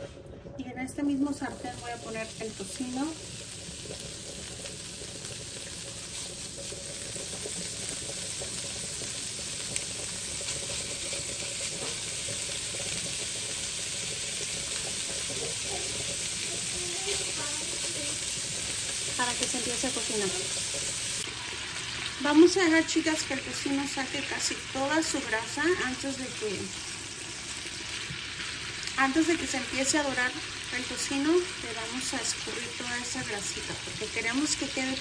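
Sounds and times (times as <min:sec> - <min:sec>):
bacon sizzling in skillet: 0:01.1 - 0:35.0.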